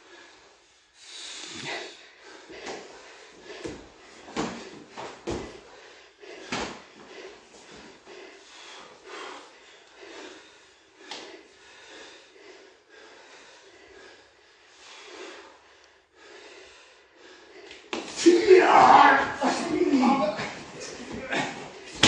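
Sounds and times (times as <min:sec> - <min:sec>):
person breathing: 0:00.0 - 0:18.0
hands slapping and thudding: 0:03.6 - 0:05.6, 0:06.4 - 0:07.0, 0:17.7 - 0:18.3.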